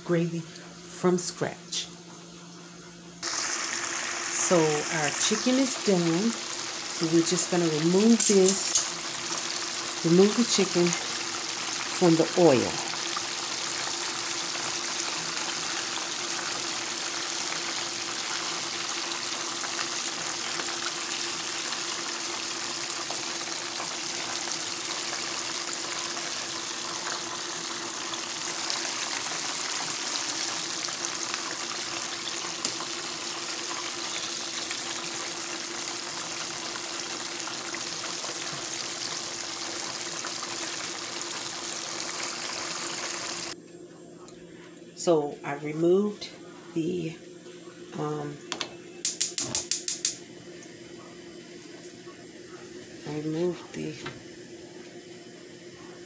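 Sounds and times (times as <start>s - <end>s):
chicken sizzling in hot oil: 3.2s - 43.6s.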